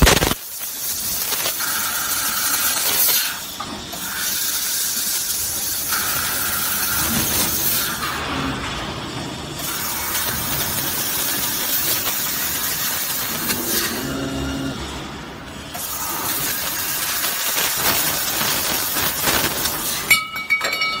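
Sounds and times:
laser cutting head hissing: 0:00.0 - 0:08.0, 0:09.6 - 0:14.7, 0:15.7 - 0:20.1
sharp metallic clinks: 0:20.1 - 0:21.0.

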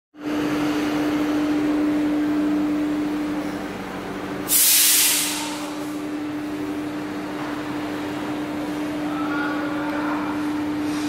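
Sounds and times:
machine hum: 0:00.2 - 0:11.0.

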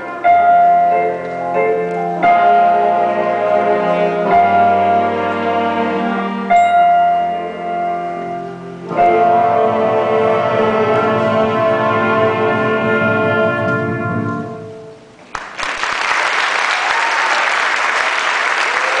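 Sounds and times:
concert band sustained chord: 0:00.0 - 0:15.1
audience clapping: 0:15.2 - 0:19.0.

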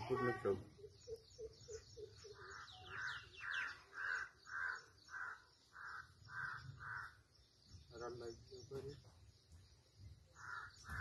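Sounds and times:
small birds chirping: 0:00.0 - 0:11.0
crow cawing: 0:02.4 - 0:07.2, 0:10.3 - 0:11.0.

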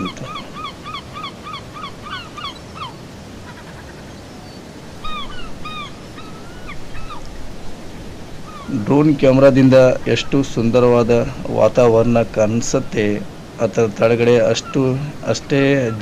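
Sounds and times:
steady background hiss: 0:00.0 - 0:16.0
bird calling in short notes: 0:05.0 - 0:07.2.

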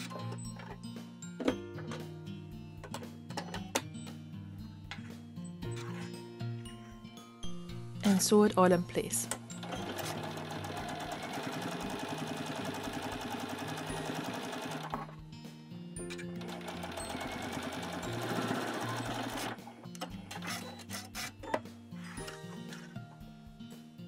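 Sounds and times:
background music: 0:00.0 - 0:24.0
sewing machine stitching: 0:09.6 - 0:15.1, 0:16.3 - 0:21.3.

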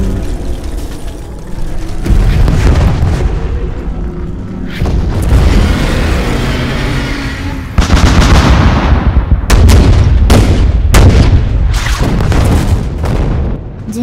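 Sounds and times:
heavy rumbling explosions: 0:00.0 - 0:14.0
tank cannon fire: 0:02.0 - 0:03.5, 0:07.8 - 0:13.7.

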